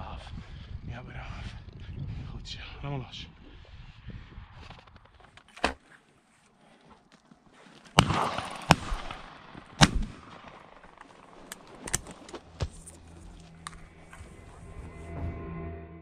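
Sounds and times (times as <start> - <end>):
faint gunshot cracks: 8.0 - 10.6
loud shotgun shots: 8.0 - 11.4.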